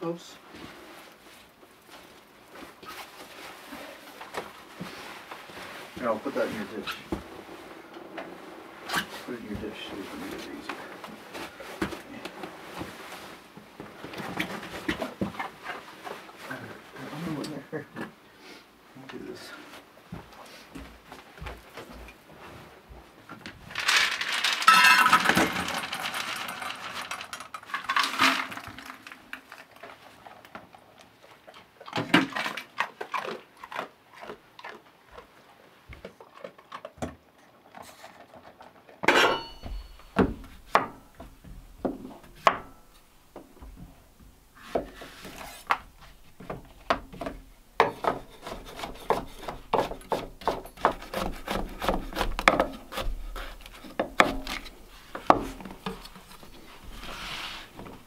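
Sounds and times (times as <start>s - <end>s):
kibble rattling into steel bowl: 23.7s - 29.7s
metal clank with ring: 39.1s - 40.2s.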